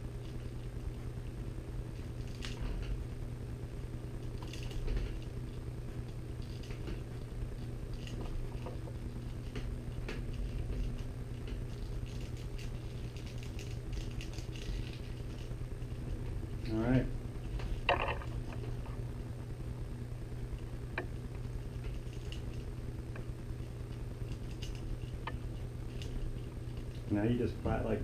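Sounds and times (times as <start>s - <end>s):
steady low hum: 0.0s - 28.0s
leather strands rustling and creaking: 4.2s - 16.2s
small ticks: 4.2s - 16.8s, 20.5s - 27.1s.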